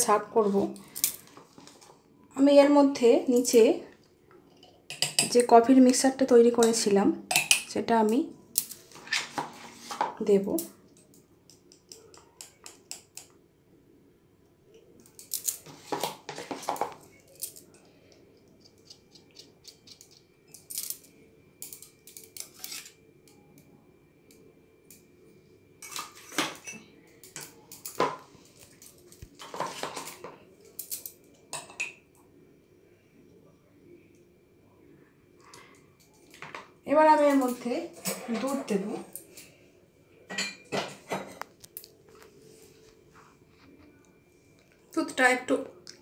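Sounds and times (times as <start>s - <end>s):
spoon clinking against a mug: 4.9s - 5.4s.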